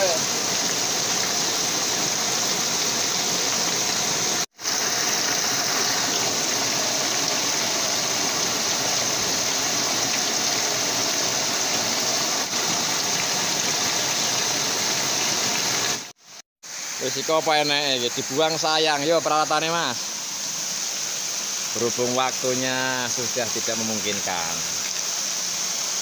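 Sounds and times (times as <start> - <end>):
flowing river water: 0.0 - 26.0.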